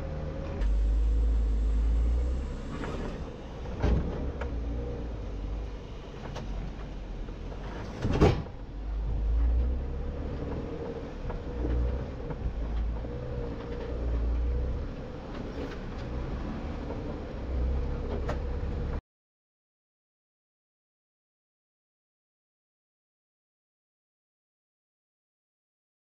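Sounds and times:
loud clunk: 7.7s - 8.6s.

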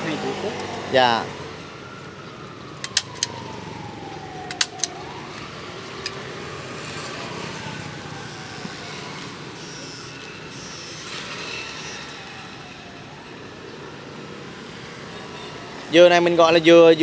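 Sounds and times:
sharp clicks: 2.8s - 3.4s, 4.4s - 6.2s
motor whining: 8.1s - 12.3s.

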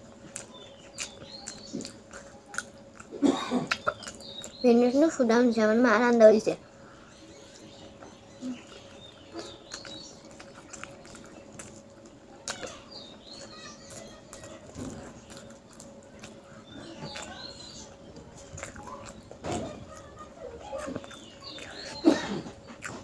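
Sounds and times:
chewing and lip-smacking: 0.0s - 4.6s, 7.1s - 23.0s
low steady hum: 0.0s - 23.0s
faint bird chirps: 0.4s - 2.7s, 3.7s - 5.2s, 6.8s - 11.8s, 12.4s - 15.6s, 16.2s - 22.5s.

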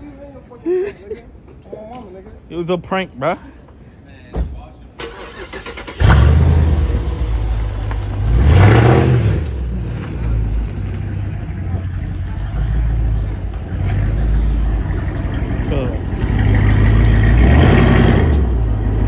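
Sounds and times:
car engine starting and revving: 5.0s - 19.0s.

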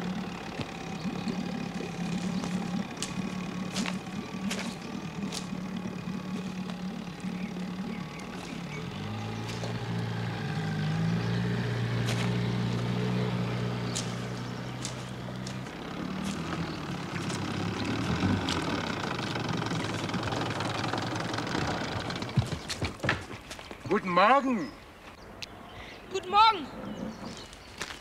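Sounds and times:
outboard motor running: 0.0s - 23.5s.

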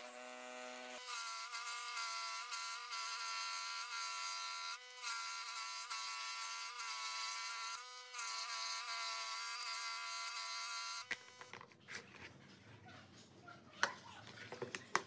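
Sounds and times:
scroll saw buzzing: 0.0s - 11.6s.

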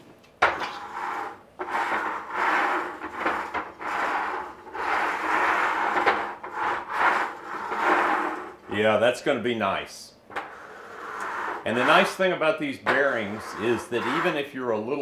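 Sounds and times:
board rolling over ball bearings: 0.5s - 8.5s, 12.8s - 14.4s.

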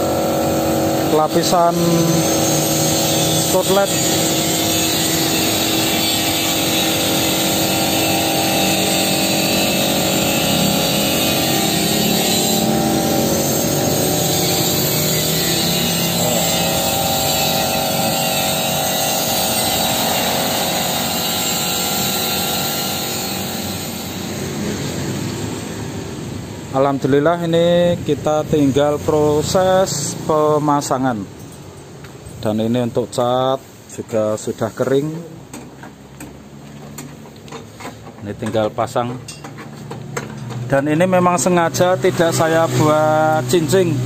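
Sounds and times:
machine hum: 0.0s - 26.7s.

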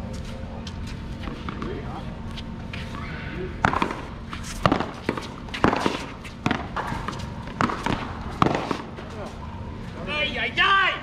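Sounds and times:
ball rebounding off concrete wall: 3.6s - 8.9s.

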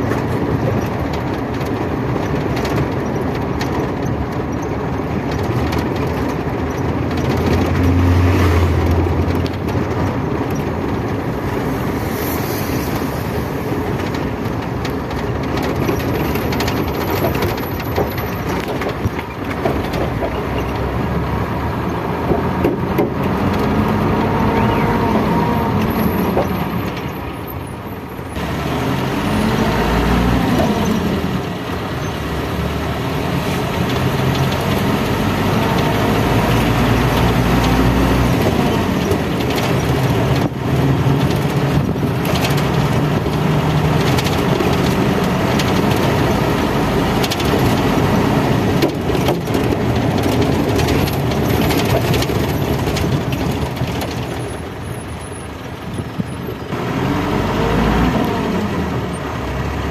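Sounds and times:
vehicle engine and road noise: 0.0s - 59.9s.

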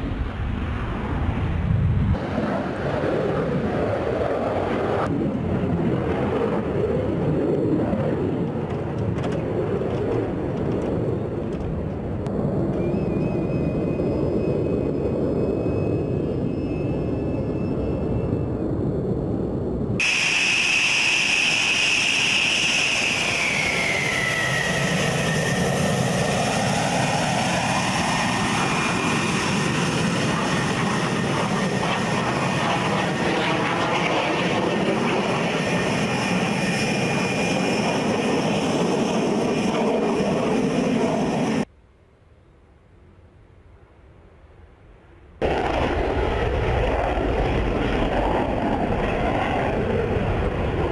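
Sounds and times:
jet engine rumble: 0.0s - 41.7s, 45.0s - 50.9s
high jet whine falling in pitch: 12.2s - 41.7s.

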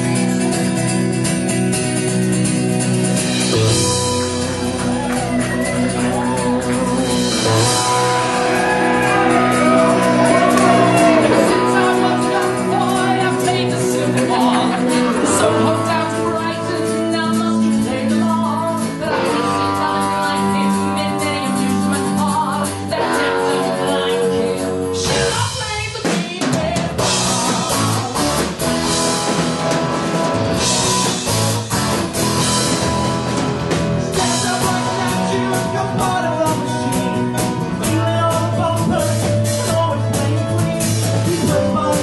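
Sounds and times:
sustained guitar chords: 0.0s - 25.6s, 27.0s - 42.0s
rock band music: 0.0s - 42.0s
person singing: 3.6s - 29.1s, 34.0s - 42.0s.

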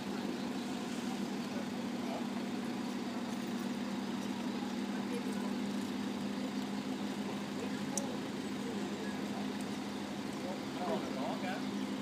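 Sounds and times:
steady machine hum: 0.0s - 12.0s.

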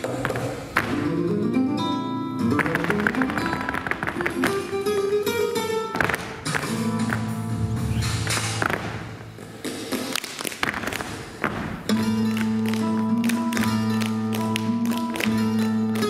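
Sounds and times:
dancers' shoe taps on stage: 0.0s - 1.1s, 2.6s - 5.0s, 5.9s - 7.3s, 8.2s - 15.4s
flamenco guitar: 0.0s - 9.3s, 9.9s - 16.0s.

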